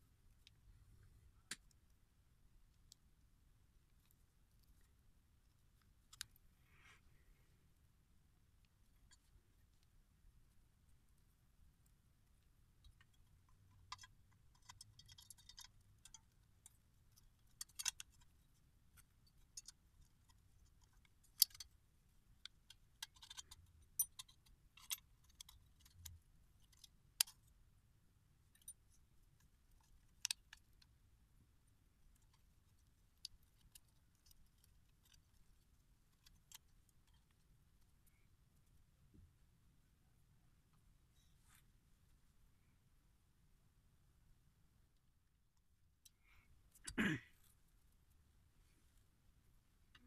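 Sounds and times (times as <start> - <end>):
small metal lock parts clicking: 12.9 - 18.3, 19.0 - 21.8, 22.4 - 27.5, 28.5 - 28.9, 29.8 - 30.7.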